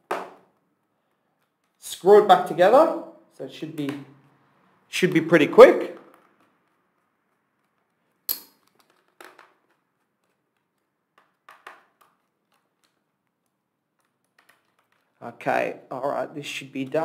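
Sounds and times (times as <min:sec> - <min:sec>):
faint clicks and taps of handling: 0:06.1 - 0:15.2.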